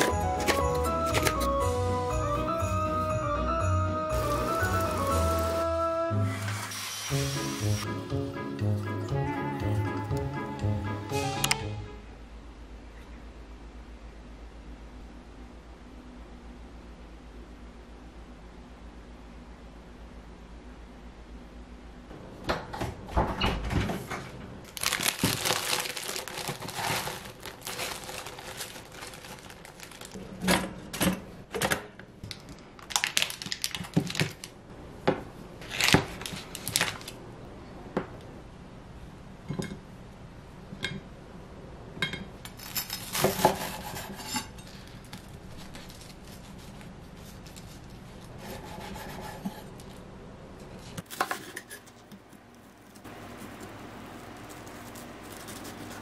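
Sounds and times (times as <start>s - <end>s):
crinkling and scraping: 0.0s - 1.5s, 23.9s - 31.2s, 42.6s - 48.7s, 50.6s - 56.0s
knife cutting butter in foil: 24.8s - 30.2s, 42.6s - 49.2s, 54.2s - 56.0s.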